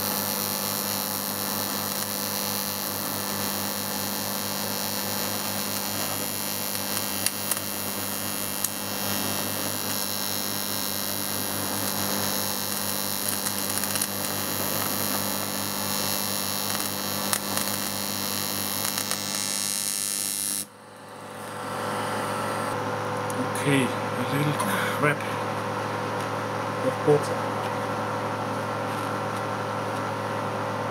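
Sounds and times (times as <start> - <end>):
welding arc humming and hissing: 0.0 - 30.9
sharp crackles: 5.4 - 19.8.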